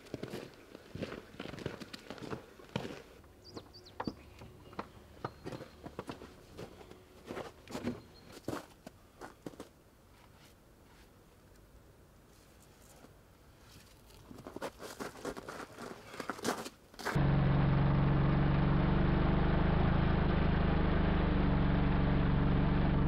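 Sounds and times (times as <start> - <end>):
footsteps in snow: 5.4 - 11.1, 12.3 - 17.2.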